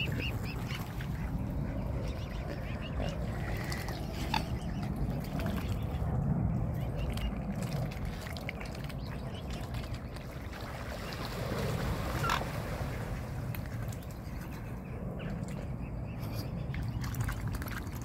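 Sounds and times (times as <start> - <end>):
steady low rumble: 0.0 - 18.0
swans splashing in water: 6.8 - 14.8, 16.8 - 18.0.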